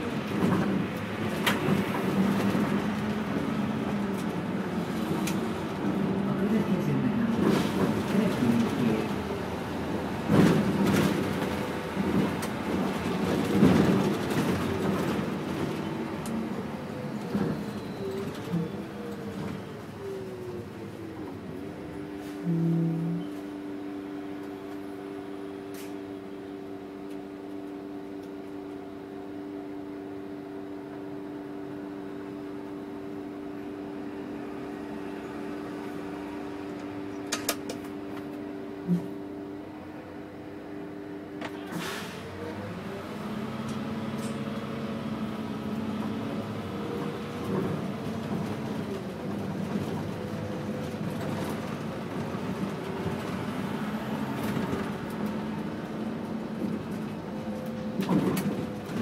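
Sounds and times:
bus diesel engine: 0.0 - 59.0.

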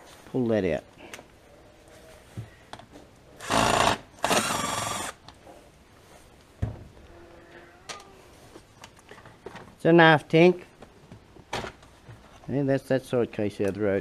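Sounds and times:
impact driver bursts: 3.4 - 5.2.

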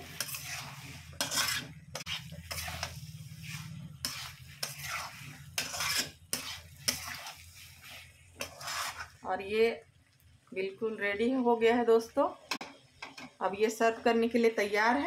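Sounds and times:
metal spatula scraping a pan: 0.0 - 9.2
food sizzling: 0.0 - 15.0.

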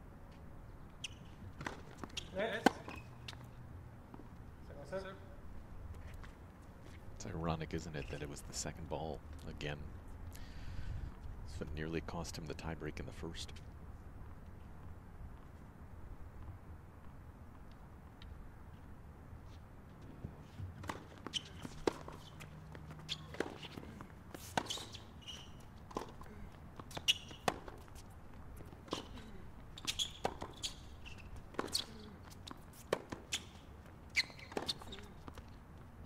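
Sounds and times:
shoes squeaking on court: 0.3 - 4.4, 7.7 - 8.5, 18.7 - 36.0
tennis ball bounces: 1.5 - 3.4, 20.6 - 35.4.

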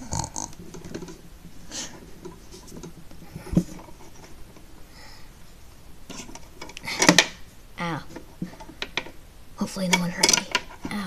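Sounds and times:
plastic toy handling scratching and rustling: 0.6 - 4.8, 6.1 - 7.2.

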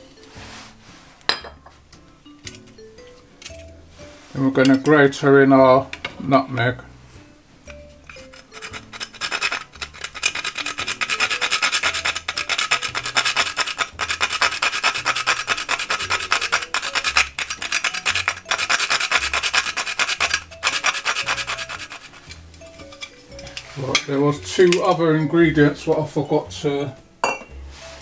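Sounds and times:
nutmeg rasped on metal grater: 8.0 - 23.8.

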